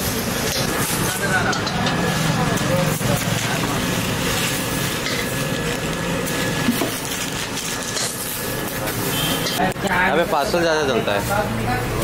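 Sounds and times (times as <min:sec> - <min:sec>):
busy food stall: 0:00.0 - 0:12.0
traffic: 0:00.0 - 0:12.0.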